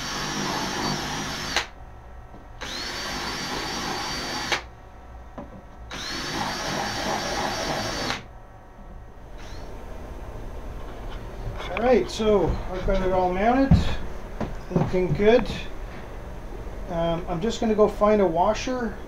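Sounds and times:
cordless drill whining: 0.0 - 1.7, 2.6 - 4.7, 5.9 - 8.3, 9.4 - 9.7.

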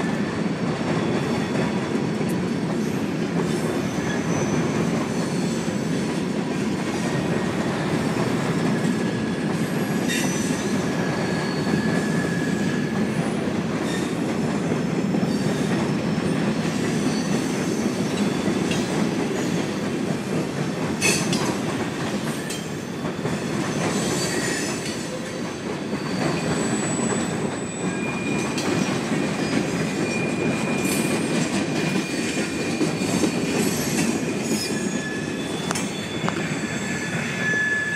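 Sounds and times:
train wheels rumbling on rail: 0.0 - 37.9
high wheel squeals: 8.9 - 13.0, 22.4 - 31.3, 31.9 - 37.9.

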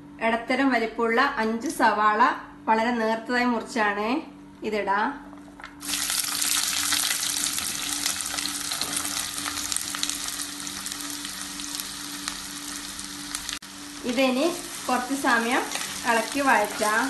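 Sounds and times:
onions sizzling in hot oil: 5.8 - 17.0.

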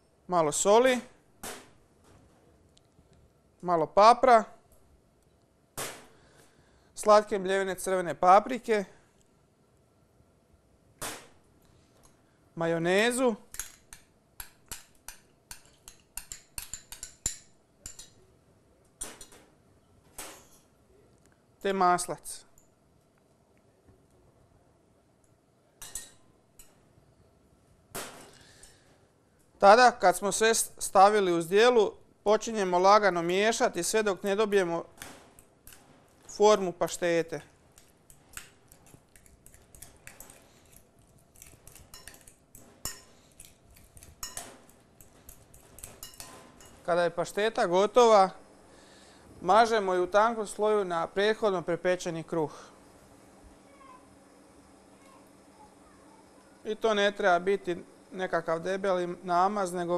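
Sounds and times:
spoon clinking on glass bowl: 13.5 - 18.2, 41.4 - 43.2, 43.8 - 44.5, 45.3 - 46.8
metal clinking on ceramic bowl: 41.7 - 43.2, 44.0 - 44.5, 45.3 - 46.8.

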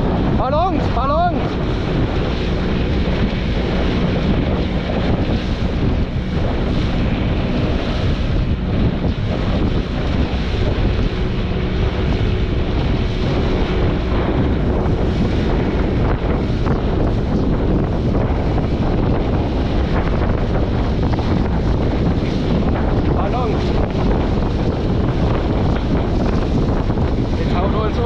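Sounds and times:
rushing sea water: 0.0 - 28.0
wind buffeting microphone: 0.0 - 28.0.

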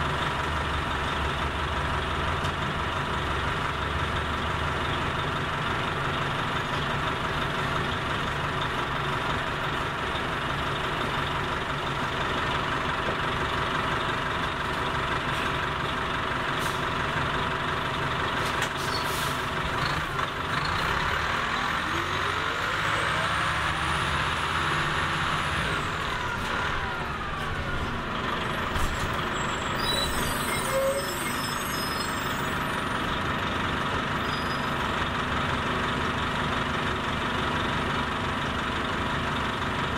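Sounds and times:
diesel bus engine idling: 0.0 - 39.9
engine revving: 19.7 - 27.5.

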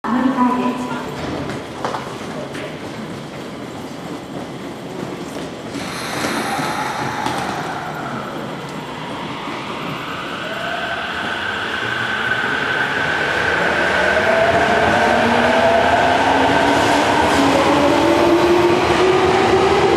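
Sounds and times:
train air hiss: 5.7 - 9.2.

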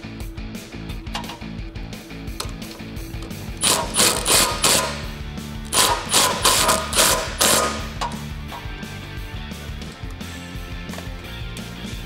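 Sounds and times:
background music: 0.0 - 12.0
impact wrench hammering: 3.2 - 8.6.

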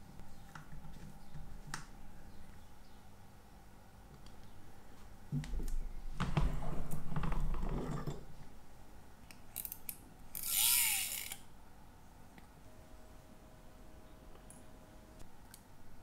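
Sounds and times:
vise screw grating and ratcheting: 10.4 - 11.4.

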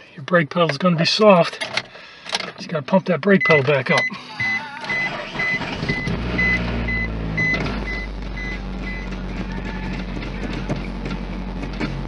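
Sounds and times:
dashboard warning chime beeping: 2.8 - 9.2
car engine running: 3.6 - 12.0.

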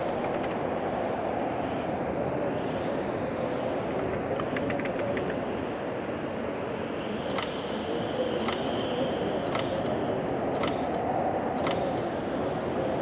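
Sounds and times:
moving vehicle running noise: 7.2 - 12.2
faint clicks: 7.3 - 10.0, 10.6 - 12.1.

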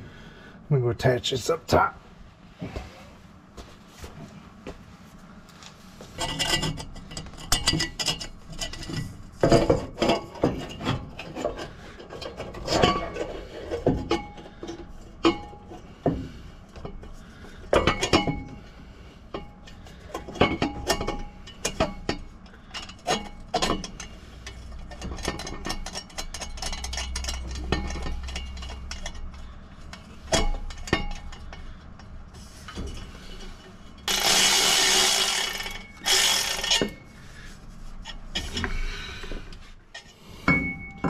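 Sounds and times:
metal tubing clanking: 19.3 - 37.1.

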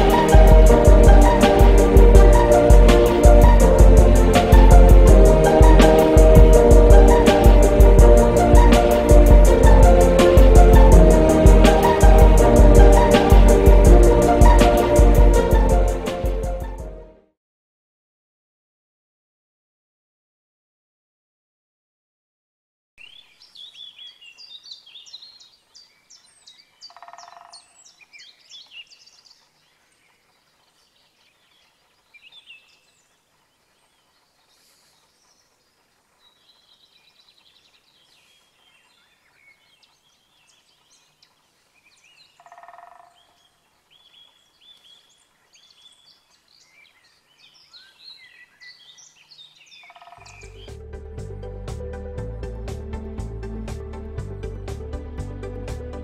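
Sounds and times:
songbirds chirping and trilling: 23.0 - 50.8.

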